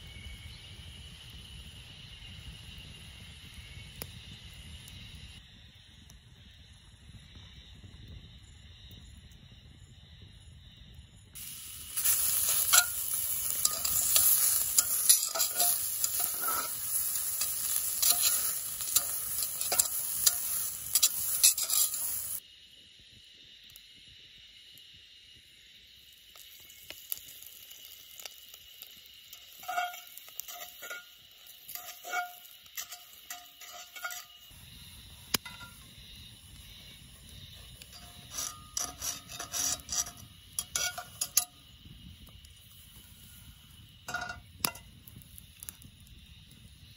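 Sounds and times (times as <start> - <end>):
loud sizzling and scraping: 11.4 - 22.4, 26.3 - 45.8
tongs clinking on cast iron: 11.4 - 22.4, 29.3 - 34.5, 35.3 - 35.8, 37.8 - 41.6, 44.1 - 44.9.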